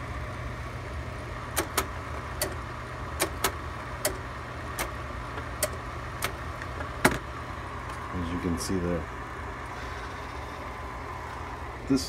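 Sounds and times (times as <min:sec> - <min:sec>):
projector cooling fan hum: 0:00.0 - 0:12.0
projector sharp clicks: 0:01.5 - 0:02.6, 0:03.2 - 0:05.0.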